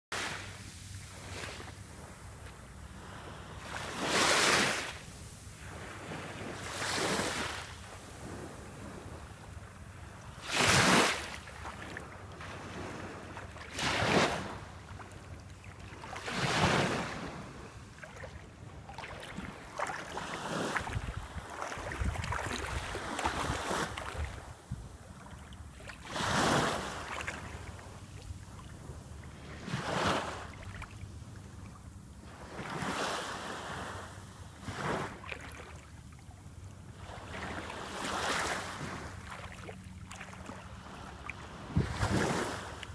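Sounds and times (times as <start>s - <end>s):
small waves lapping on shore: 0.2s - 42.9s
wind rumbling on microphone: 18.4s - 25.6s, 41.6s - 42.4s.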